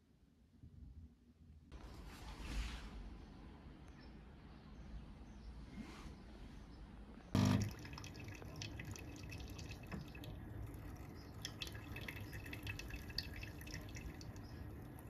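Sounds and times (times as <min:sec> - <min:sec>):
coffee machine mechanical hum: 0:07.3 - 0:08.6
coffee dripping and trickling: 0:07.4 - 0:15.0.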